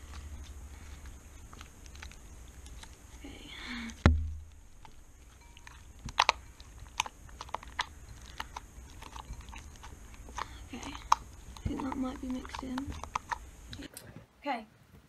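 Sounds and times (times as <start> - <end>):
foam slime clicking and crackling: 0.0 - 13.9
sharp thump: 4.0 - 4.5.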